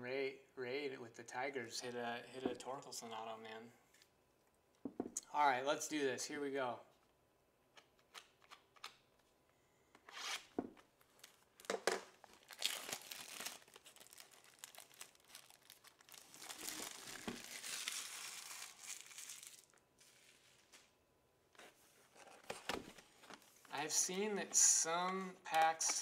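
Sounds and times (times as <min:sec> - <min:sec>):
plastic wrap crinkling: 0:11.0 - 0:21.0.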